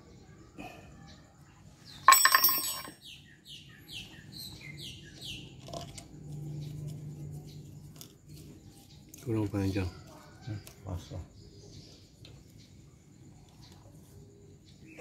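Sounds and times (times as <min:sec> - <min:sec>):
screwdriver clinking on metal: 0:02.1 - 0:03.0.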